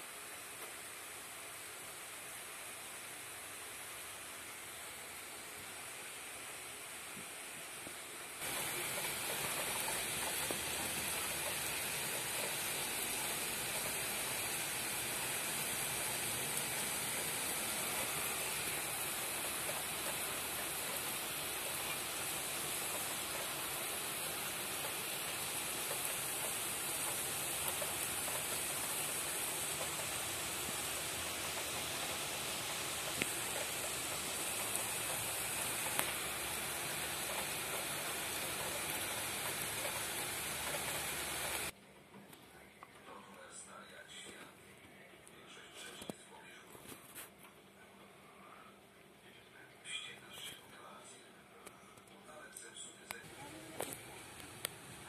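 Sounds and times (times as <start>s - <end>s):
heavy rain hissing: 0.0s - 41.7s, 53.1s - 55.0s.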